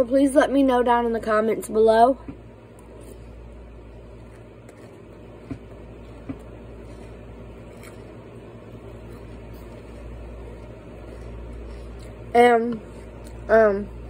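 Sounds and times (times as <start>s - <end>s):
steady low hum: 0.0s - 14.0s
chewing crunchy cereal: 2.8s - 13.5s.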